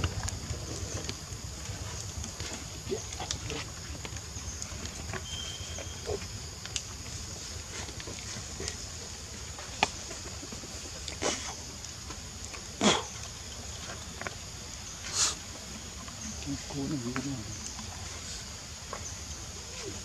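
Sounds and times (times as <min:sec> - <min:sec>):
high insect hum: 0:00.0 - 0:20.0
monkey grunts: 0:11.1 - 0:11.6, 0:12.8 - 0:13.2.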